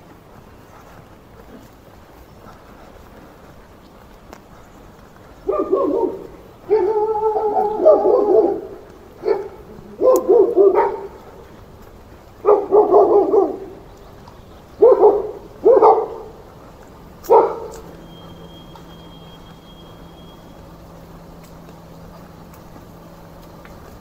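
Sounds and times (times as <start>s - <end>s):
dog barking: 5.4s - 11.2s, 12.4s - 13.8s, 14.8s - 16.4s, 17.2s - 17.9s.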